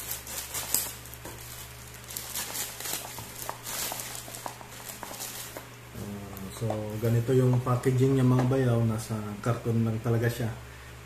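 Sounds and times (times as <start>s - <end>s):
scissors cutting plastic: 0.0s - 5.6s
plastic pouch crinkling: 0.0s - 7.4s.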